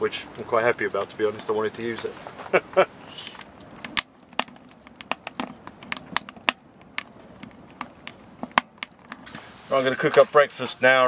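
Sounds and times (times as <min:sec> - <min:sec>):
wood fire crackling and popping: 0:02.8 - 0:10.6.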